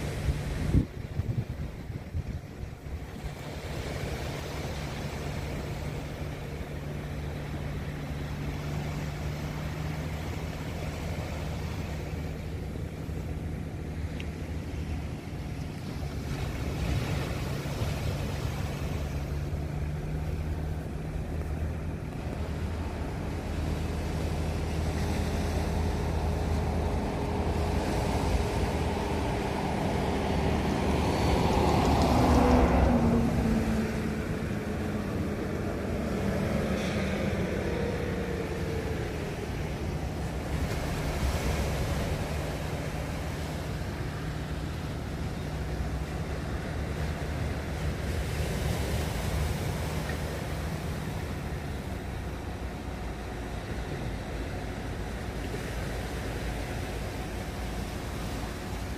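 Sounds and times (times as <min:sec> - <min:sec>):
low engine hum: 0:00.0 - 0:58.9
small waves washing: 0:00.0 - 0:58.9
vehicle passing by: 0:21.8 - 0:52.6.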